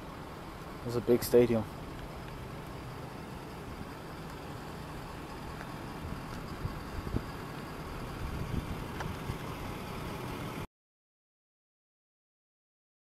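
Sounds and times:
motor vehicles rumbling: 0.0s - 10.7s.

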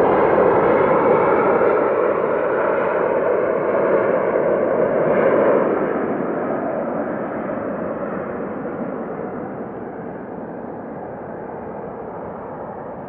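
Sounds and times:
jet engines roaring: 0.0s - 13.0s.

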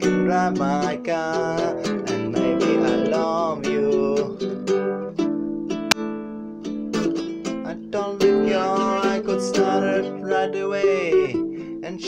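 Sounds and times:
man singing: 0.0s - 4.5s, 7.6s - 12.0s
classical guitar strummed chords: 0.0s - 12.0s.

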